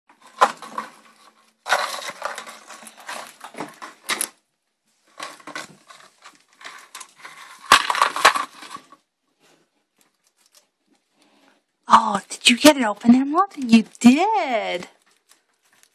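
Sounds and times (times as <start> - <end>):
rats tearing cardboard tube: 0.1 - 4.4, 5.1 - 9.0, 14.8 - 15.9.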